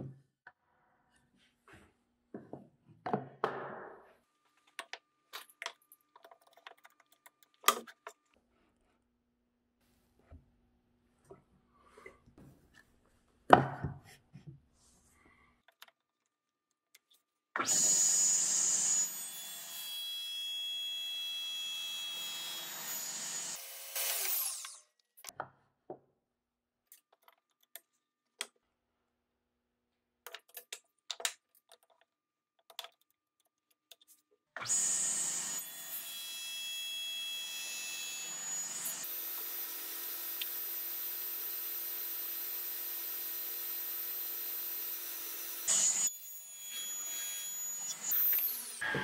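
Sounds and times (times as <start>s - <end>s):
table saw cutting wood: 17.6s - 24.8s, 34.6s - 49.0s
saw blade high whine: 43.3s - 49.0s.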